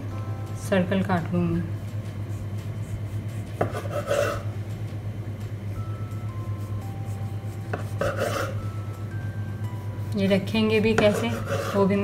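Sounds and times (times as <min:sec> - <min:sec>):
knife cutting dough: 0:02.3 - 0:04.5, 0:06.6 - 0:08.6, 0:10.1 - 0:12.0.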